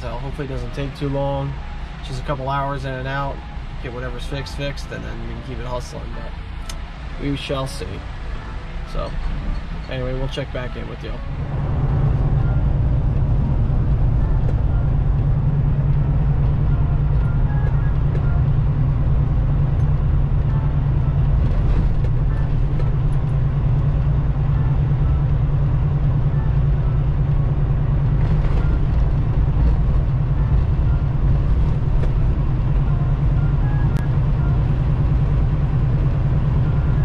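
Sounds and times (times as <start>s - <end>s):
truck engine and road noise: 0.0s - 37.0s.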